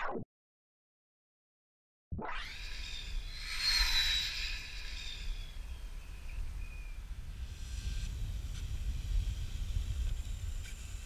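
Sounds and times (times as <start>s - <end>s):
electric motor whine passing: 2.2s - 11.0s.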